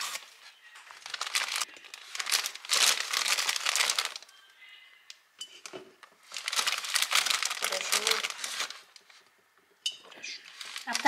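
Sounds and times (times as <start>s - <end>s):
packaging bag crinkling: 0.0s - 4.4s, 6.2s - 9.2s, 10.4s - 11.0s.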